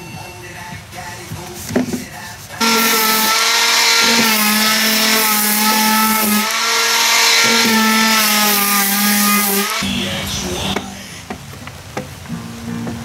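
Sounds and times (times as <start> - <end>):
angle grinder grinding wood: 2.6 - 10.8.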